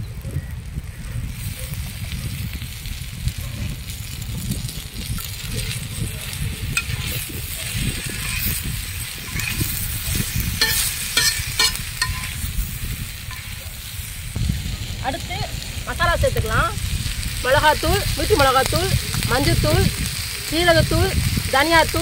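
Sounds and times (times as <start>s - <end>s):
liver sizzling in oil: 0.8s - 22.0s
low rumble: 5.0s - 22.0s
metal spatula scraping pan: 6.8s - 12.5s, 13.3s - 13.6s.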